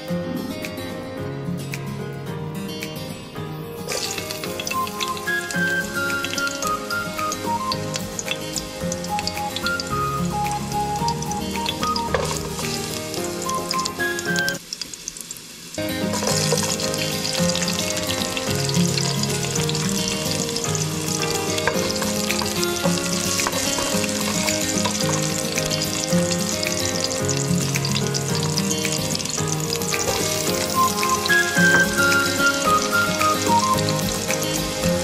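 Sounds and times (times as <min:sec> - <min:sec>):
instrumental background music: 0:00.0 - 0:14.6, 0:15.8 - 0:35.0
food sizzling in hot oil: 0:03.8 - 0:35.0.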